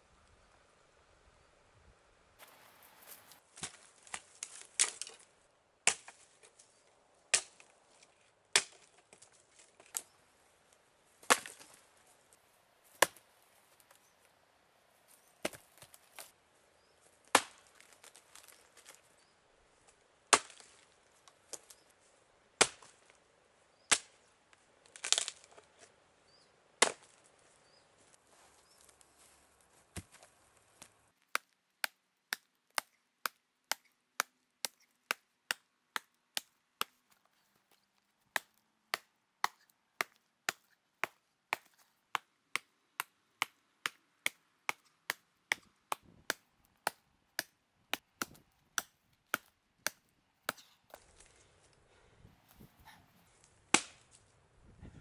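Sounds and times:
axe chopping into wood: 11.2s - 11.7s, 26.8s - 27.2s, 38.4s - 50.8s.

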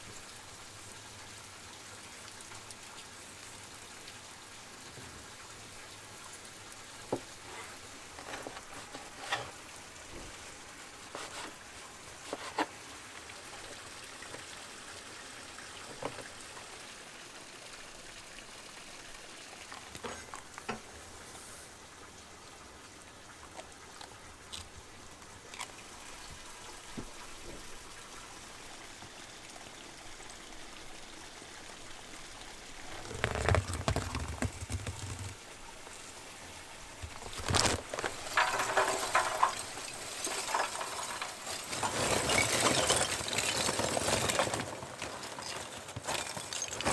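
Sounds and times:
soft outdoor hiss: 0.0s - 46.9s
paper sack stitching ripping: 32.9s - 35.4s, 37.0s - 38.2s
stiff paper rustling: 32.9s - 35.4s, 37.0s - 39.4s.

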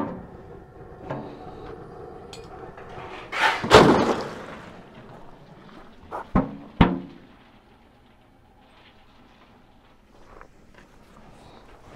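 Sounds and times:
hollow metal clatter: 2.3s - 11.9s
loud splash: 3.3s - 6.2s.

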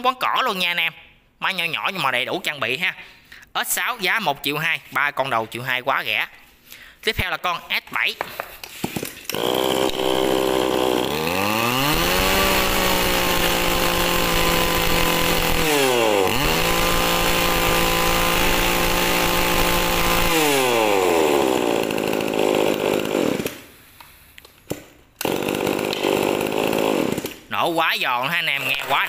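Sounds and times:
brush cutter engine running: 9.3s - 23.6s, 25.2s - 27.4s, 28.6s - 29.0s.

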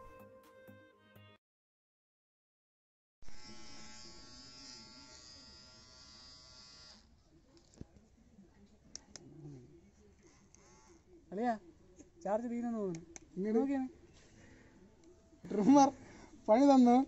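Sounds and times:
hair trimmer buzzing: 3.2s - 7.1s, 10.3s - 11.0s.

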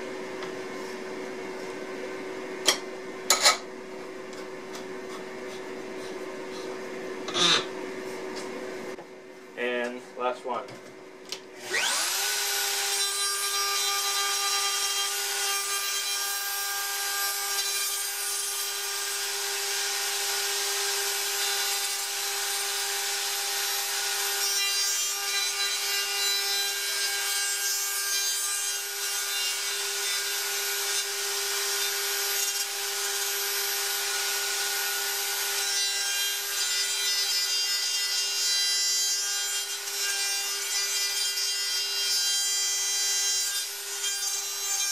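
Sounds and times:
router whining and cutting wood: 11.3s - 37.6s.

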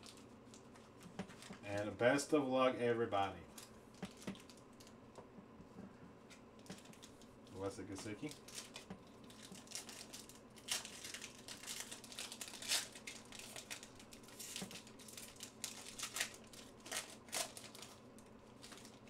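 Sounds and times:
foil wrapper tearing and crinkling: 6.7s - 19.0s.

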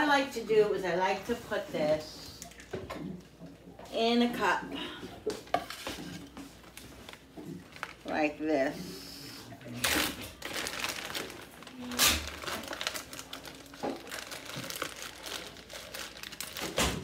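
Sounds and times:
plastic bag crinkling: 5.7s - 8.3s, 9.6s - 17.0s.

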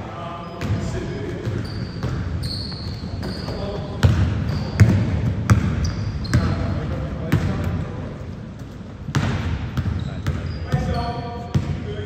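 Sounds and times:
players' voices echoing: 0.0s - 12.0s
shoe squeaks: 0.2s - 4.9s, 5.7s - 6.8s, 9.9s - 12.0s
basketball bouncing on wooden floor: 3.2s - 6.6s, 8.6s - 10.9s.

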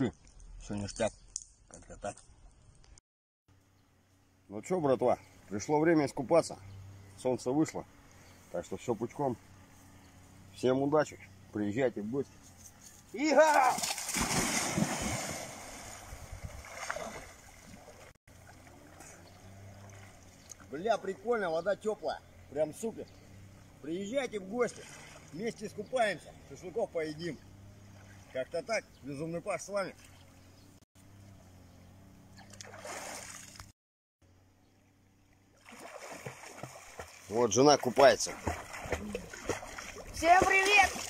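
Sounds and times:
water splashing: 13.4s - 21.1s, 24.4s - 25.7s, 32.4s - 33.7s, 35.2s - 41.0s
water sloshing: 13.6s - 20.8s, 24.4s - 25.6s, 32.4s - 33.7s, 35.2s - 41.0s.

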